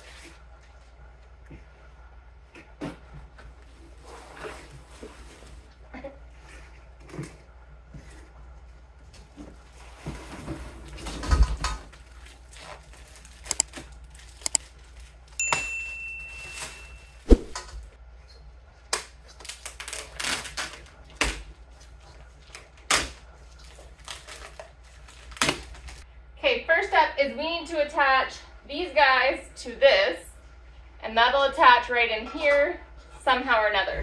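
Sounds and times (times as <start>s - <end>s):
metal parts clicking and rattling: 13.4s - 13.7s
ringing metal clink: 15.4s - 17.2s.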